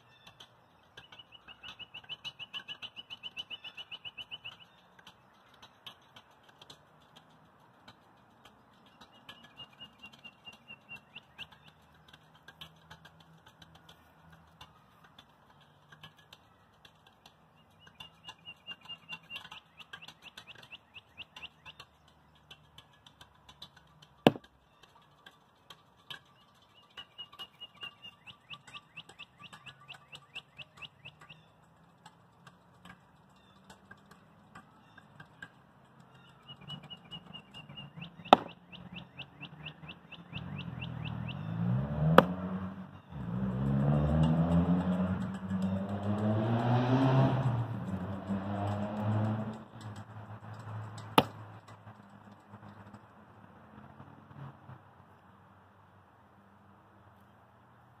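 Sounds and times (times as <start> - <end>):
bird high-pitched chips: 0.0 - 6.5, 8.1 - 12.4, 14.2 - 23.3, 24.0 - 31.8, 34.7 - 42.2
sharp knock: 38.4 - 38.6.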